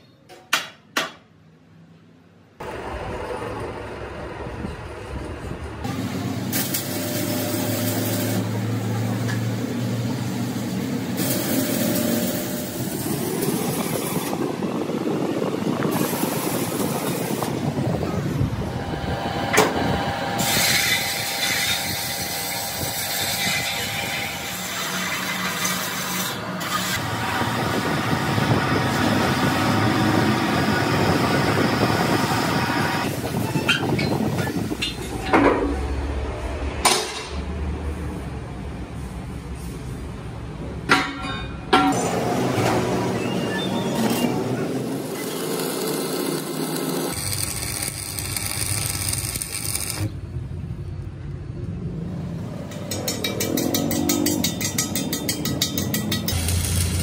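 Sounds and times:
arc welding crackling: 6.0s - 15.0s, 15.6s - 33.3s, 44.4s - 50.3s, 55.7s - 57.0s
wheel turning against abrasive: 43.0s - 50.3s.

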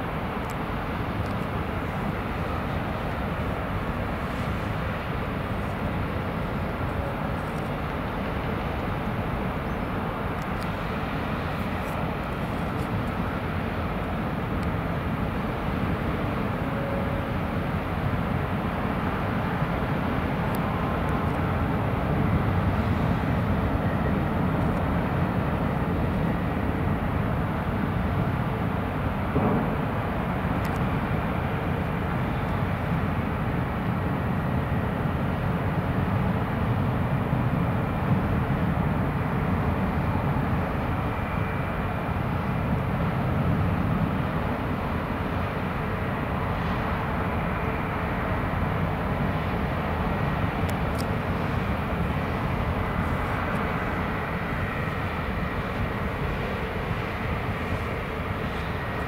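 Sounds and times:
propellers churning water: 0.0s - 59.0s
ship engines rumbling: 36.3s - 59.0s.

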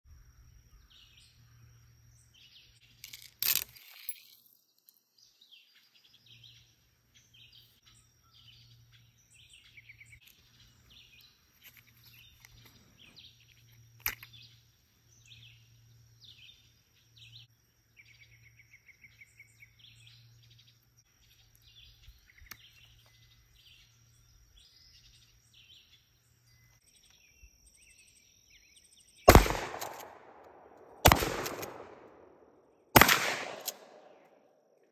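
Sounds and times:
birds chirping and singing: 5.2s - 30.0s
shotgun firing: 29.3s - 34.2s.

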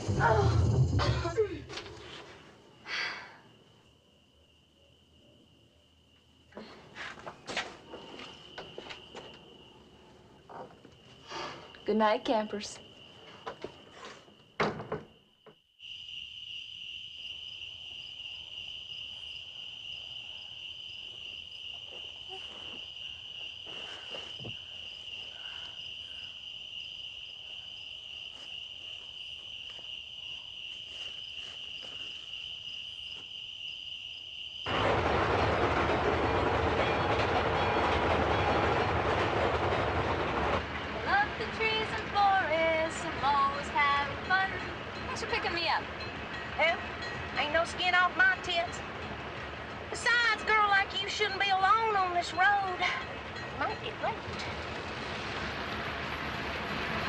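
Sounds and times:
crickets chirping: 0.0s - 57.0s
motor vehicle rumble: 52.9s - 57.0s.

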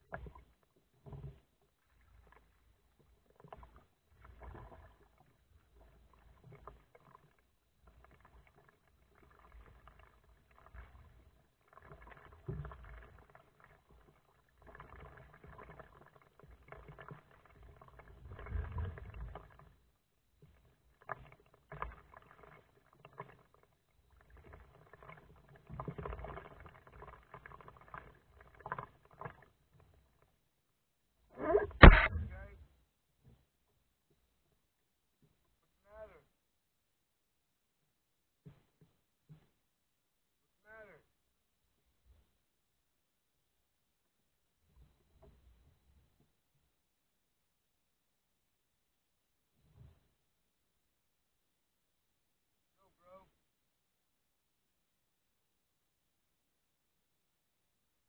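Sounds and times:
water splashes and drips: 0.0s - 30.2s
paddle strokes in water: 0.0s - 30.4s.

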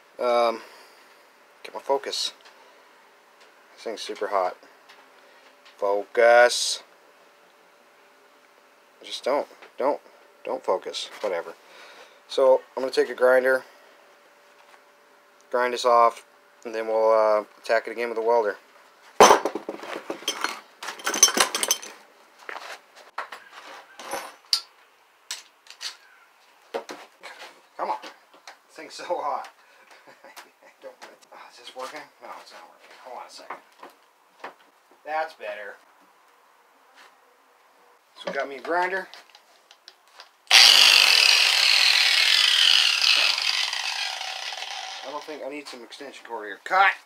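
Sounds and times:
metal hand tools clinking: 20.2s - 22.0s
angle grinder whining: 40.5s - 45.4s.

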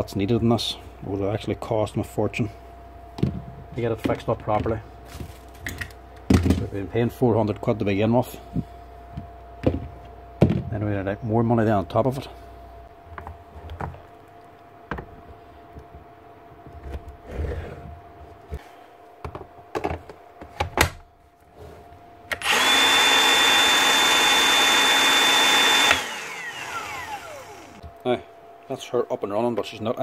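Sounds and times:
motor spinning down: 22.3s - 27.9s
drill motor whining: 22.3s - 28.0s.

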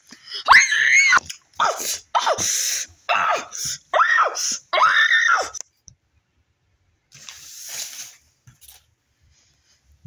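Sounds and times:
person squealing: 0.4s - 2.4s.

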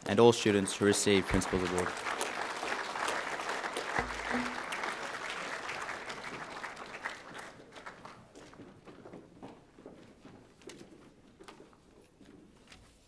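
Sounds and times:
audience applauding: 0.5s - 8.5s.

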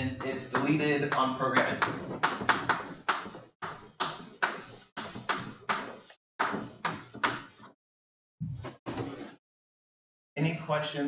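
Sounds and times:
chalk tapping on blackboard: 0.0s - 7.8s, 8.6s - 9.3s.

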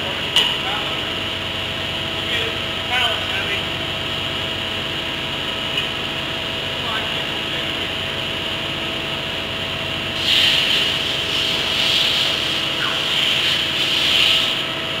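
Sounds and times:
forklift humming: 0.0s - 15.0s
loud hiss: 10.2s - 14.7s.

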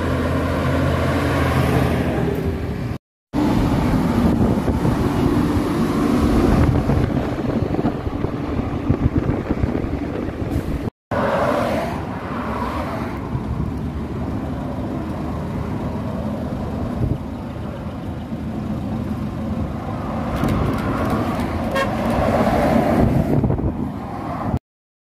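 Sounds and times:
truck engine approaching: 0.0s - 24.1s
car tyre noise passing: 3.4s - 24.6s
short horn toot: 21.7s - 22.0s.

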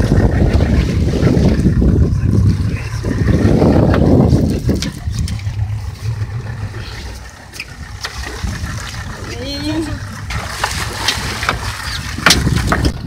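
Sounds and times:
boat engine running: 0.0s - 13.0s
water sloshing against hull: 0.0s - 13.0s
wind buffeting microphone: 0.0s - 13.0s.

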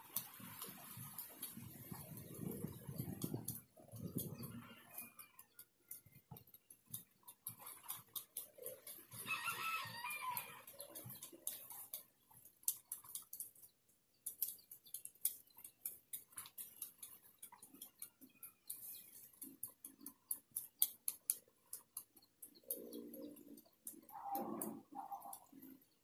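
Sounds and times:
rooster crowing: 9.2s - 10.6s.

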